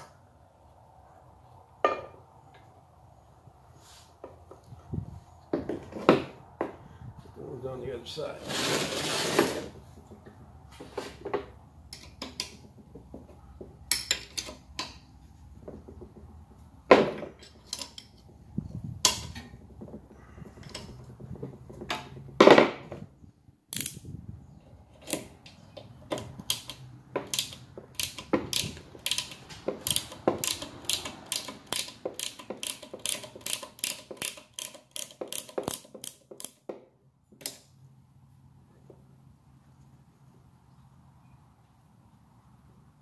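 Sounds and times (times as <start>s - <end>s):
ratchet wrench clicking: 23.7s - 24.0s, 26.1s - 36.6s.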